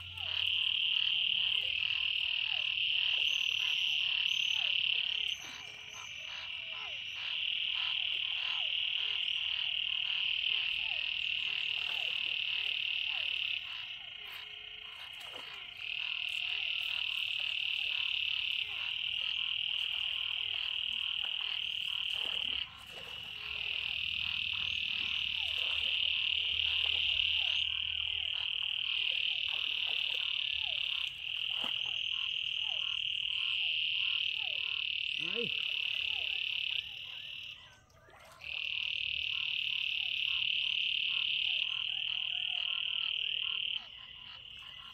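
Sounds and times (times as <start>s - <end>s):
frogs trilling: 0.0s - 44.9s.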